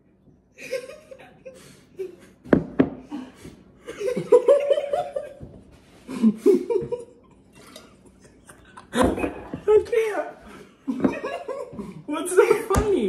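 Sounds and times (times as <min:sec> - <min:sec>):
people laughing hard: 0:00.6 - 0:02.4, 0:03.1 - 0:07.2, 0:10.5 - 0:12.8.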